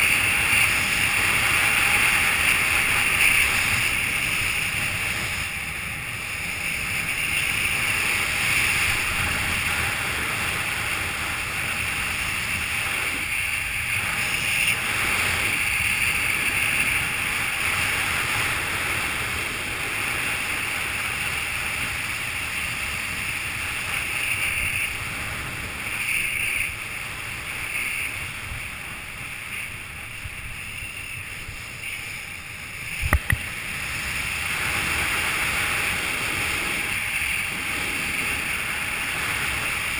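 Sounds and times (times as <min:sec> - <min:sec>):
skis sliding over snow: 0:00.0 - 0:39.9
wind rushing over microphone: 0:00.0 - 0:39.9.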